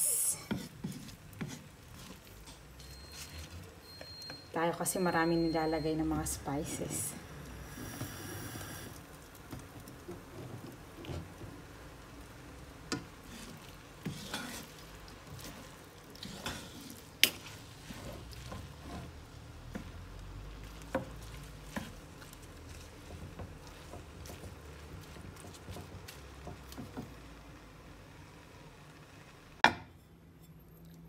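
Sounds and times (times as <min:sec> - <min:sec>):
meat sizzling softly: 0:00.0 - 0:04.0, 0:05.2 - 0:29.6
wooden spatula scraping frying pan: 0:00.4 - 0:03.8, 0:09.6 - 0:11.7, 0:12.8 - 0:27.2.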